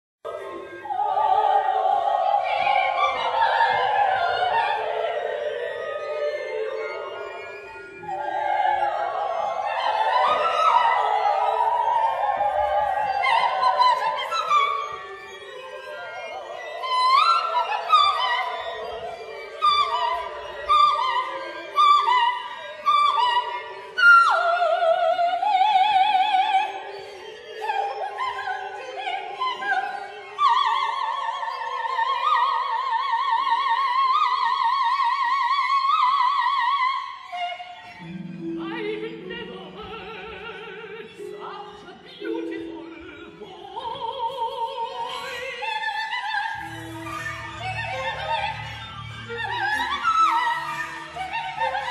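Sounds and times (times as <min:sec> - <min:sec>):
operatic soprano singing: 0:00.3 - 0:51.9
low orchestral notes: 0:37.3 - 0:51.9.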